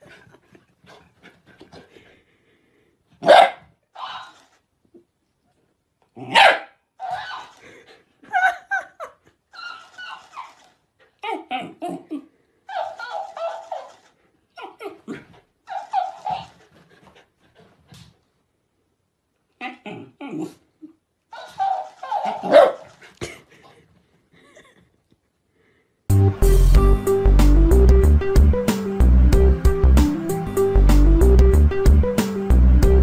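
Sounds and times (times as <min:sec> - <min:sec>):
dog barking: 0:03.2 - 0:04.3, 0:06.2 - 0:07.4, 0:12.7 - 0:14.0, 0:21.3 - 0:22.9
talking toy squeaky voice: 0:12.7 - 0:14.0, 0:15.7 - 0:16.6.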